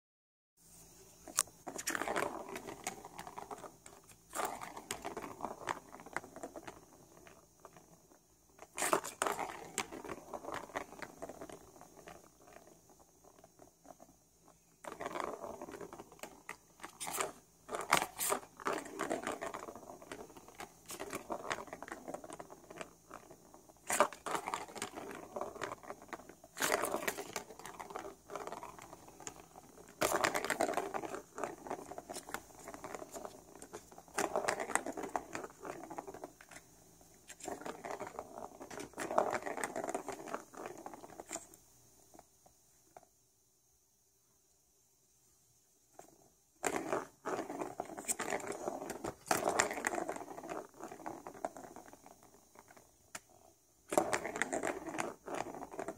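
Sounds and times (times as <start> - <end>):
ball rolling on plastic track: 1.2 - 43.1, 45.9 - 55.9.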